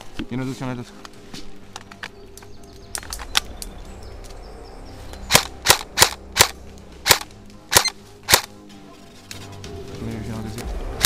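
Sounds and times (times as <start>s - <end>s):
airsoft rifle shots: 5.3s - 8.5s.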